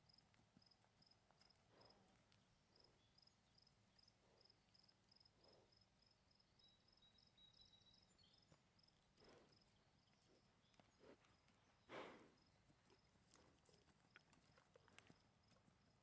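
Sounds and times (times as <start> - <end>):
horse hoofbeats on soft dirt: 0.0 - 3.7, 8.2 - 16.0.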